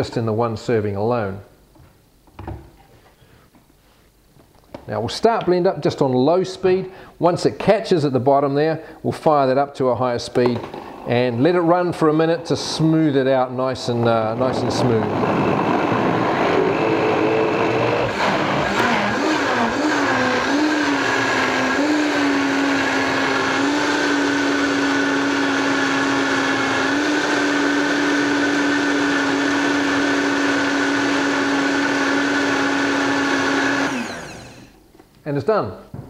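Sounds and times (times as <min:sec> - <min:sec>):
blender motor whining: 0:14.5 - 0:34.8.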